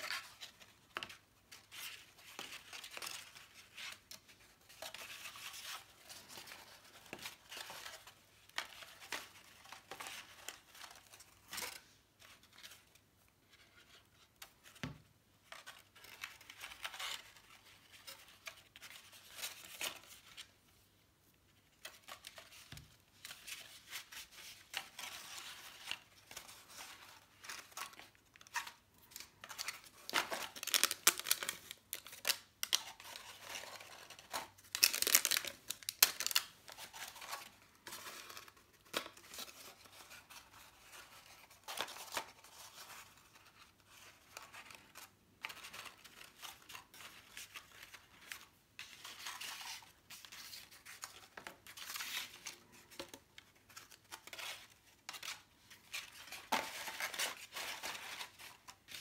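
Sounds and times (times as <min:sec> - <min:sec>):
paper petals rustling and crinkling: 0:21.6 - 0:59.0.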